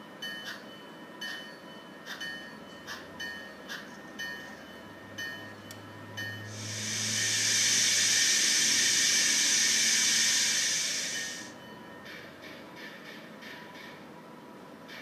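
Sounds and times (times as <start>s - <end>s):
steam hiss: 6.4s - 11.6s.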